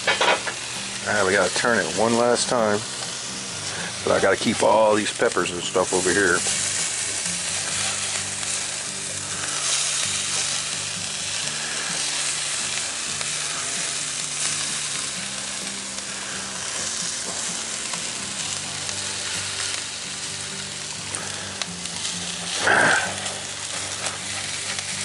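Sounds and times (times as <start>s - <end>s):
food sizzling in a skillet: 0.0s - 25.0s
spatula scraping a pan: 6.0s - 10.8s.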